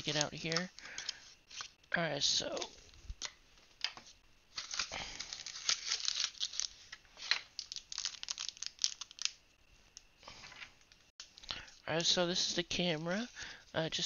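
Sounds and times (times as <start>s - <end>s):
packaging crinkling and tearing: 0.0s - 1.7s, 4.5s - 10.1s.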